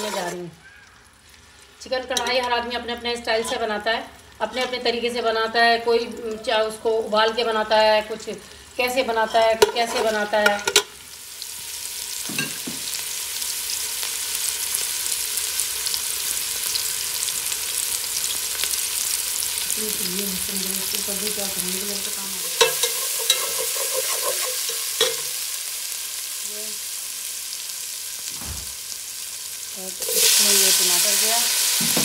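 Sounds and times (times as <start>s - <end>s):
onions sizzling in hot oil: 0.0s - 32.0s
metal spoon clinking against pot: 2.2s - 2.6s, 9.3s - 10.9s, 22.4s - 25.4s.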